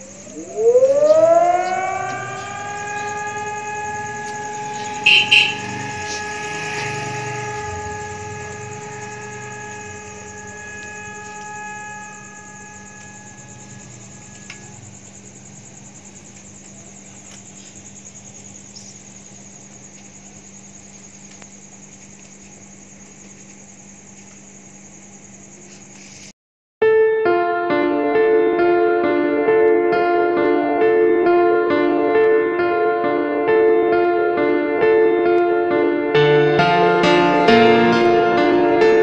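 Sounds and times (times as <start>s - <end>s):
siren steady tone: 0.0s - 15.9s.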